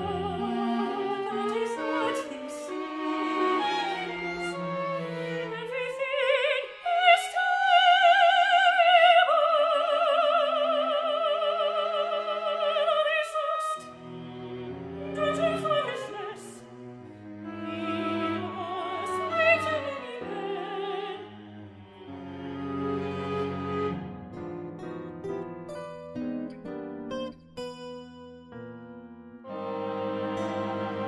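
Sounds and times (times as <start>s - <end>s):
soprano singing opera: 0.0s - 14.0s, 15.0s - 16.8s, 17.5s - 21.8s
orchestra strings: 0.0s - 26.8s, 29.4s - 31.0s.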